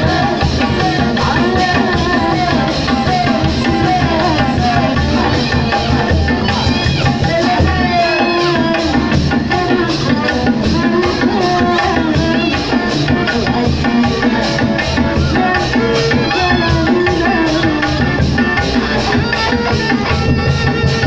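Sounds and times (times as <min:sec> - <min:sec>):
drums and percussion beat: 0:00.0 - 0:21.0.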